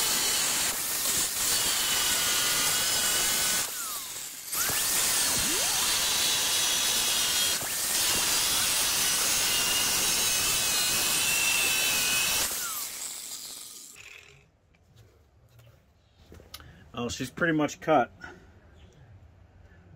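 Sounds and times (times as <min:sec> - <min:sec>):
angle grinder cutting steel: 0:00.0 - 0:14.4
grinder spinning down: 0:00.0 - 0:14.4.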